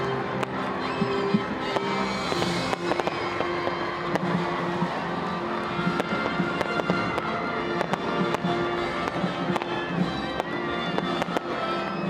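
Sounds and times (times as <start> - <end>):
fireworks bursting: 0.0 - 12.0
music with held notes: 0.0 - 12.0.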